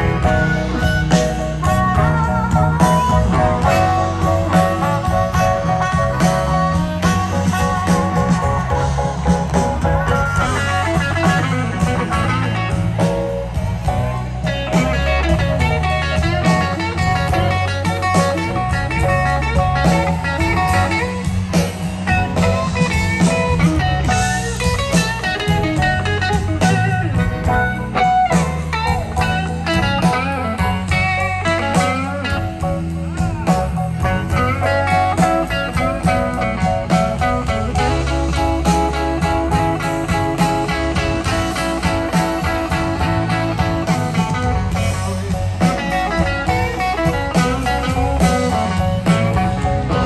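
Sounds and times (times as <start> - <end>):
bass guitar: 0.0 - 50.0
drums: 0.0 - 50.0
lead electric guitar: 0.0 - 50.0.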